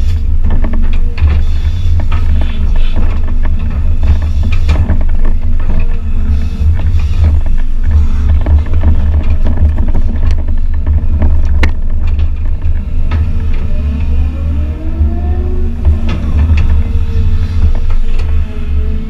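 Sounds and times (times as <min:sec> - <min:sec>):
excavator diesel engine running: 0:00.0 - 0:19.0
rising machine whine: 0:12.6 - 0:19.0.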